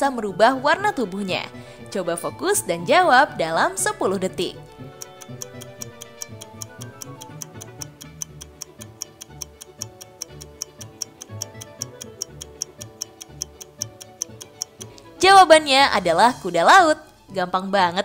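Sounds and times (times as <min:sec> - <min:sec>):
background music: 0:00.0 - 0:18.0
fast clock ticks: 0:04.7 - 0:15.2, 0:16.5 - 0:17.3.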